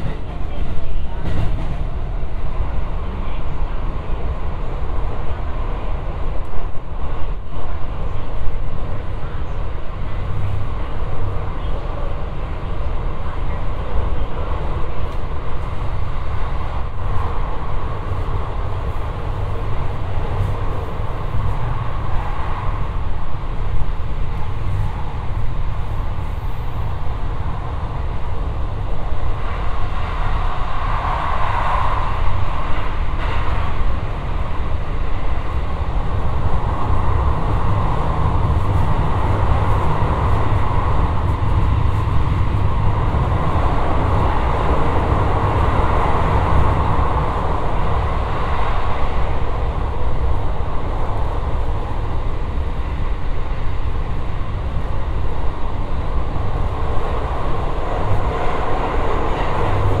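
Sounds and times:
train wheels rumbling on rail: 0.0s - 60.0s.

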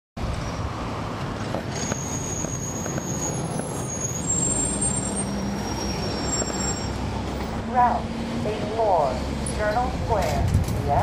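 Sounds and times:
bus diesel engine rumble: 0.2s - 11.0s.

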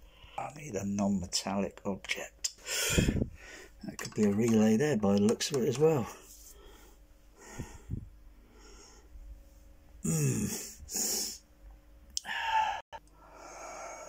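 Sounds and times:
person breathing: 2.6s - 3.8s, 6.2s - 9.2s, 10.3s - 11.4s, 12.2s - 14.0s
low grunt or sigh: 10.0s - 11.4s.

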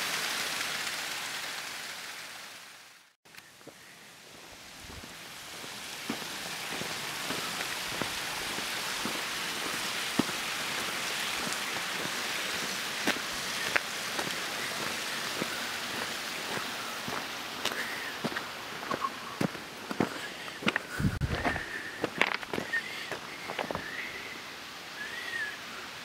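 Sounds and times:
steady rushing hiss: 0.0s - 26.0s
footsteps on gravel: 3.6s - 23.8s.

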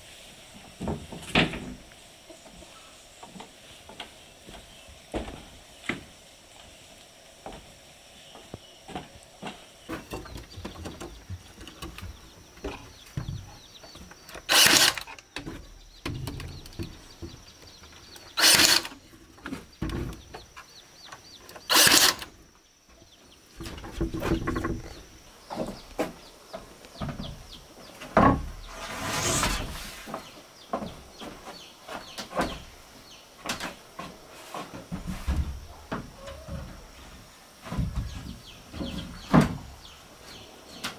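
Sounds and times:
birds chirping: 7.4s - 40.9s
nail gun firing: 14.5s - 15.2s, 18.4s - 19.0s, 21.7s - 22.3s.

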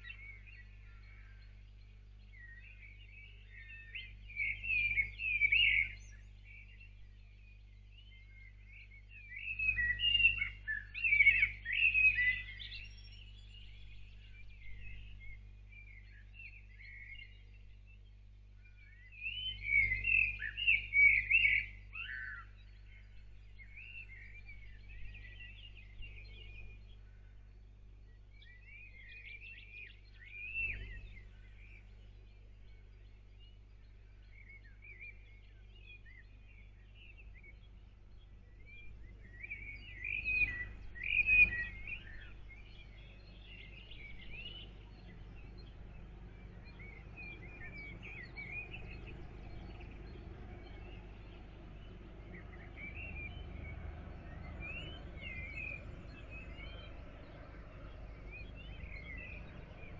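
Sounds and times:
birds chirping and warbling: 0.0s - 59.9s
steady low hum: 12.4s - 59.9s.

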